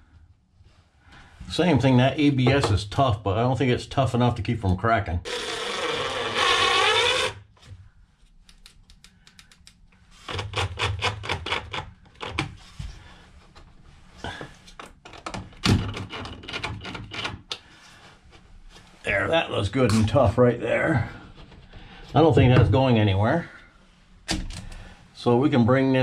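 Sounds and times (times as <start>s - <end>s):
cordless drill motor running: 5.3s - 7.4s
rapid clicking of drill: 5.3s - 7.4s.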